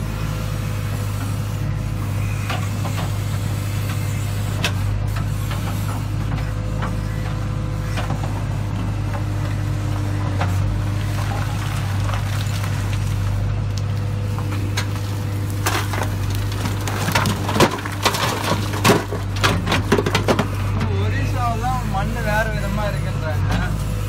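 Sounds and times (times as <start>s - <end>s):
diesel engine running: 0.0s - 24.0s
stones clattering into truck bed: 15.6s - 20.6s.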